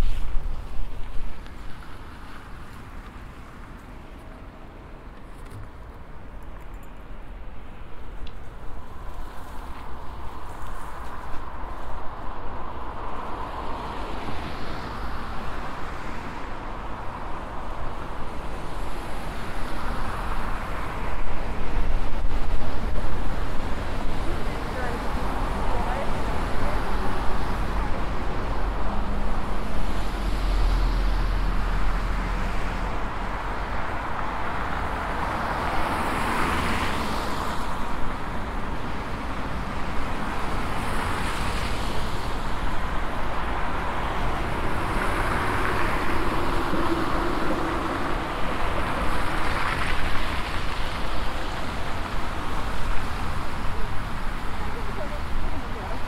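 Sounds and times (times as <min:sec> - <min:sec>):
cars passing: 0:00.0 - 0:56.0
road traffic noise: 0:00.0 - 0:56.0.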